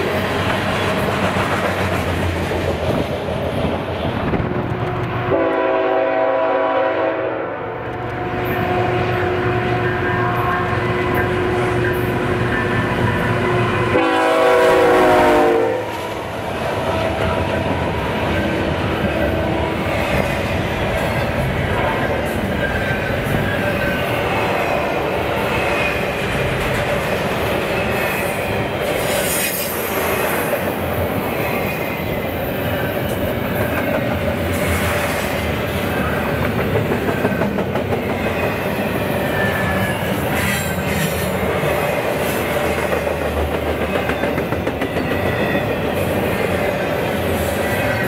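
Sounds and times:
train cars rolling on rails: 0.0 - 48.0
high wheel squeals: 38.0 - 41.2.

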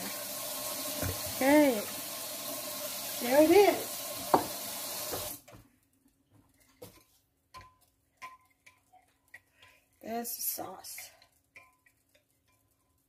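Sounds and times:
tap water running: 0.0 - 5.6.

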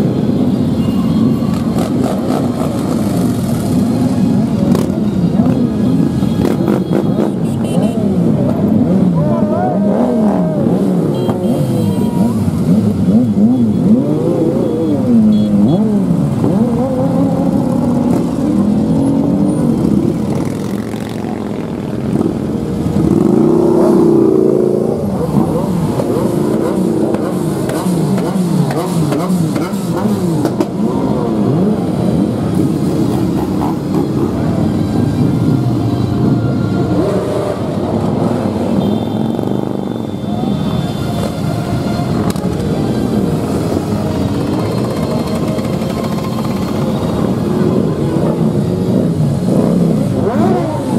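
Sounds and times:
motorcycle engines revving: 0.0 - 50.9.

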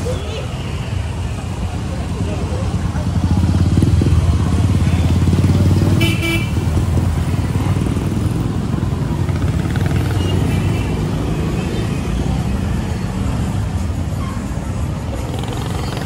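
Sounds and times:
street traffic: 0.0 - 16.0
motorcycle engine running: 2.6 - 10.4
horn toot: 5.9 - 6.7.

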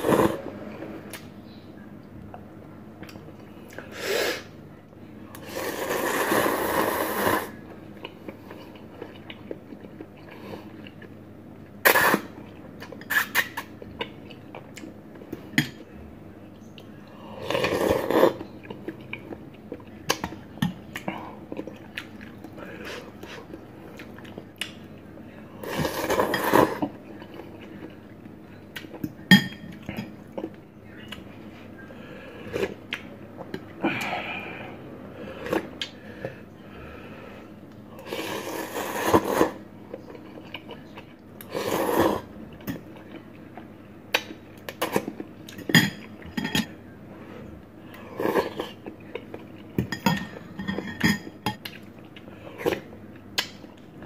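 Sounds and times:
slurping noodles: 0.0 - 1.0, 5.4 - 7.6, 11.8 - 12.4, 17.3 - 18.4, 25.6 - 27.0, 38.0 - 39.7, 41.4 - 42.3.

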